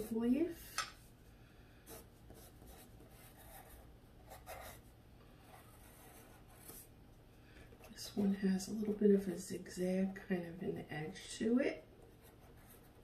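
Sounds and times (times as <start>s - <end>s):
pencil scratching on paper: 1.9s - 4.8s, 5.4s - 6.9s, 11.9s - 13.0s.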